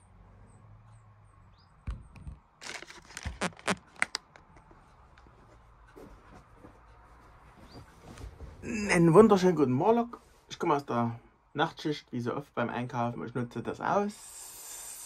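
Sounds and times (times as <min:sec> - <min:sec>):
crinkling: 0:02.3 - 0:08.6.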